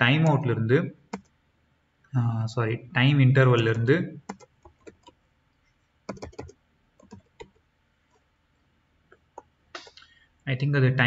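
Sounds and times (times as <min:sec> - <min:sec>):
computer keyboard typing: 0:01.1 - 0:01.3, 0:03.7 - 0:05.2, 0:06.1 - 0:07.6.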